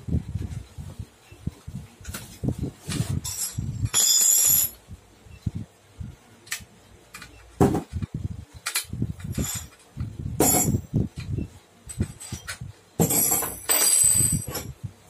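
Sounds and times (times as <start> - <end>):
metal tools clinking and knocking: 3.0 - 4.8, 8.6 - 10.8, 11.8 - 14.8.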